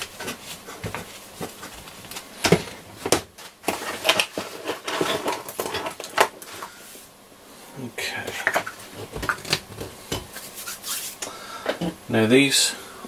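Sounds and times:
tissue rubbing on radio panel: 0:10.4 - 0:11.2.

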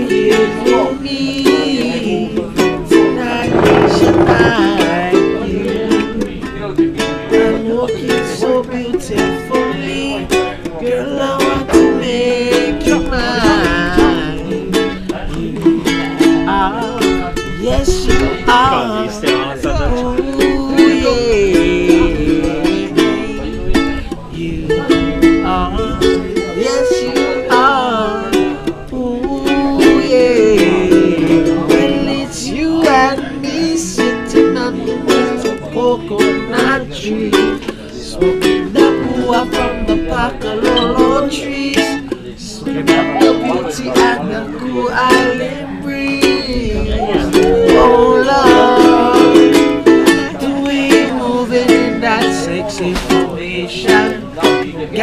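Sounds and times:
man singing: 0:00.0 - 0:55.0
ukulele strumming: 0:00.0 - 0:55.0.

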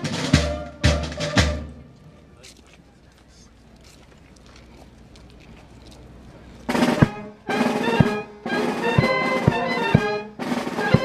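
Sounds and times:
brass and drum band playing: 0:00.0 - 0:02.1, 0:06.7 - 0:11.0.

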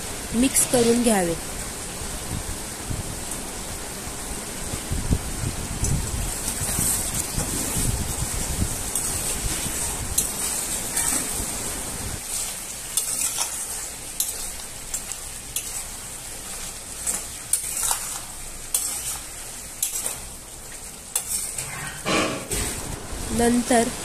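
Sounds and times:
steady sizzle: 0:00.0 - 0:24.0
metal spatula scraping a pan: 0:00.4 - 0:01.2, 0:08.9 - 0:11.4, 0:17.0 - 0:20.3, 0:21.1 - 0:22.8.

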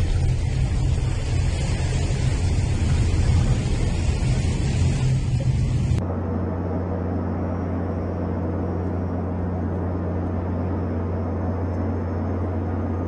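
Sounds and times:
aircraft cabin rushing: 0:00.0 - 0:06.0
low engine hum: 0:00.0 - 0:13.0.

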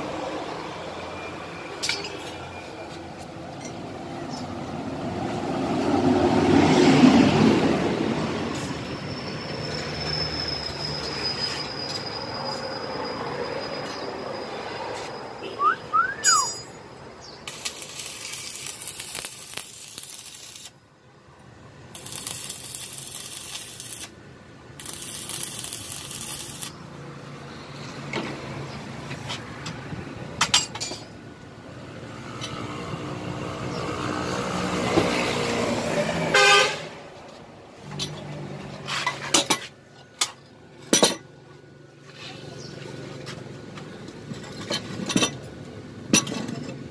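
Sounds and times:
passing vehicle engine: 0:03.8 - 0:19.6, 0:31.6 - 0:39.3
arc welding crackling: 0:17.4 - 0:20.8, 0:21.9 - 0:24.2, 0:24.8 - 0:26.9
vehicle horn: 0:36.3 - 0:37.0.

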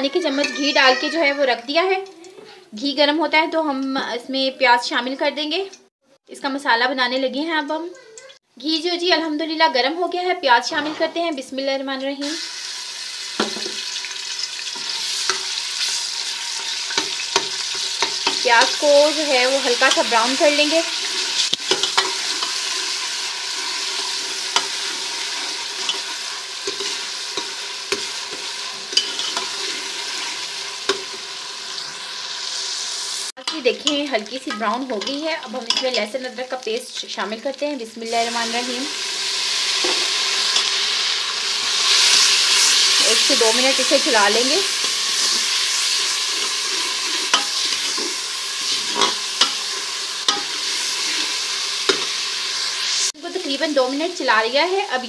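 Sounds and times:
onions sizzling in pot: 0:00.0 - 0:05.7, 0:08.6 - 0:55.0
spoon scraping and knocking pot: 0:16.6 - 0:18.8, 0:21.4 - 0:22.6, 0:24.5 - 0:30.3, 0:47.0 - 0:49.6, 0:50.3 - 0:51.2.

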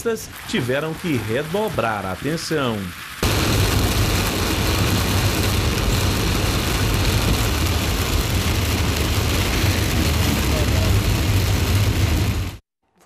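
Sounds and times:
heavy rain on a car: 0:00.0 - 0:12.6
car engine and tyre rumble: 0:02.9 - 0:12.6.

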